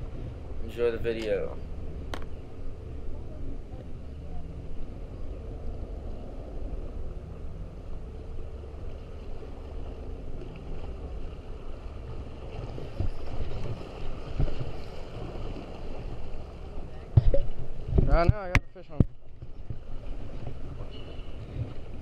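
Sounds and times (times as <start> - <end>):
wind rumbling on microphone: 0.0 - 22.0
water lapping at rocks: 8.8 - 22.0.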